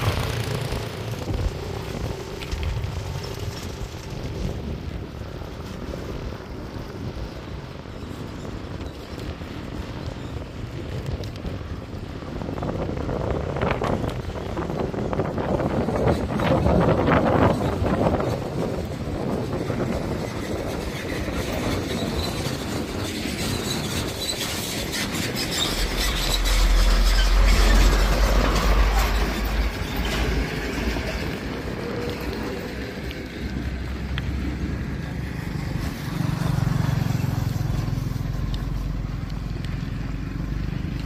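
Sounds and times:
motorbike passing: 0.0 - 41.0
cargo truck driving past: 25.0 - 39.2.

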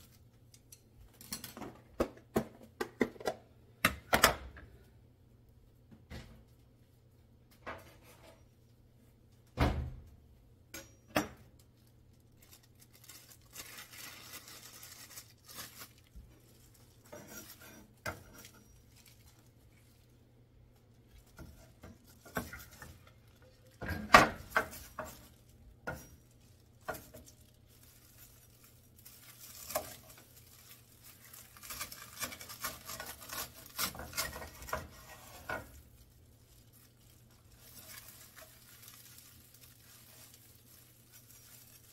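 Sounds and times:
seaweed crackling and rustling: 11.6 - 23.8, 24.4 - 35.0, 35.6 - 41.9.

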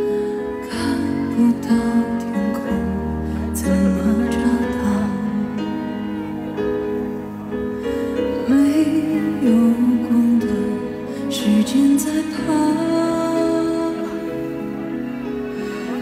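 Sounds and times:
instrumental backing music: 0.0 - 16.0
woman singing into a microphone: 0.1 - 6.0, 8.2 - 14.9.

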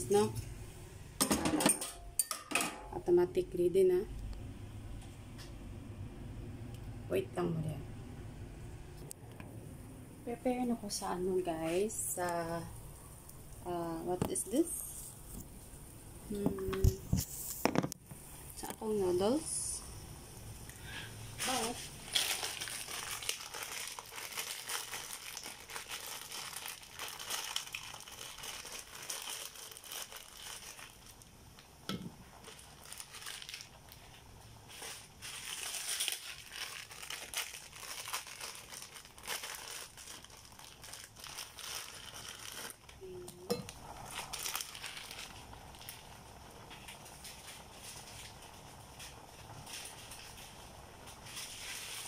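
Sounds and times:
plastic wrappers crinkling: 21.4 - 31.6, 32.2 - 52.0.

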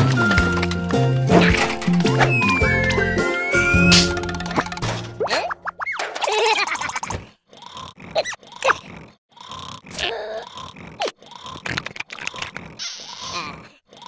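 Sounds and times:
squeaky pitch slides: 2.0 - 4.2
crunching chewing sound effects: 7.2 - 14.0
cartoon creature grunts and groans: 7.4 - 11.9, 12.6 - 14.0.

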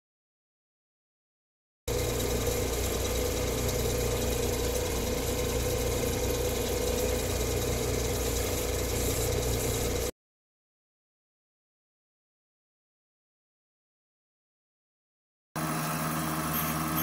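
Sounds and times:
grinding machine motor humming: 1.9 - 10.1, 15.6 - 17.0
stone against grinding wheel: 2.0 - 10.1, 16.0 - 17.0.

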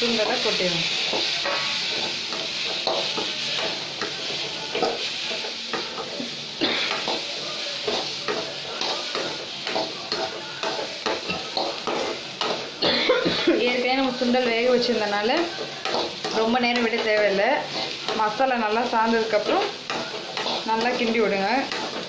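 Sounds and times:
spoon scraping metal pan: 0.0 - 6.2, 13.4 - 22.0
chickpeas sizzling in a pan: 0.0 - 22.0.

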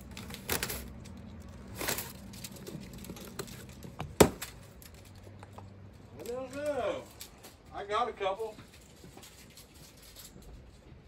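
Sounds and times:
plastic straps scraping and crinkling: 0.0 - 5.4.

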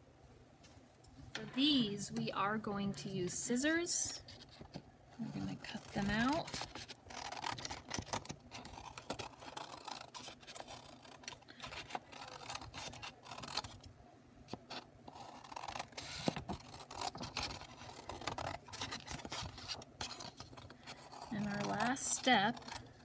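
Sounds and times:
scissors snipping paper: 4.3 - 13.9, 14.5 - 23.0
paper rustling: 14.5 - 23.0.

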